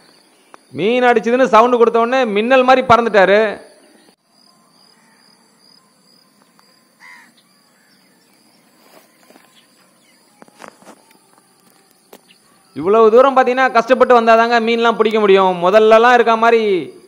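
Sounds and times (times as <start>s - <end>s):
bird calling: 3.6s - 5.6s, 6.3s - 12.9s
footsteps crunching dry leaves: 8.1s - 12.4s.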